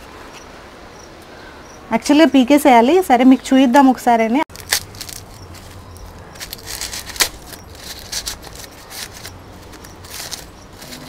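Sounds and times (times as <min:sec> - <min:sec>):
corn husks crackling and tearing: 0:04.5 - 0:11.0.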